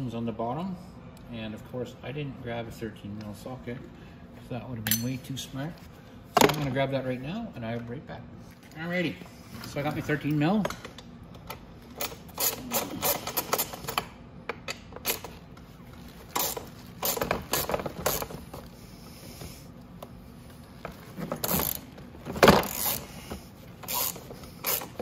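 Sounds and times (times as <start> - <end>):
ratchet wrench clicking: 12.0 - 14.0, 16.3 - 18.4, 21.4 - 21.8, 22.6 - 23.1, 23.8 - 25.0.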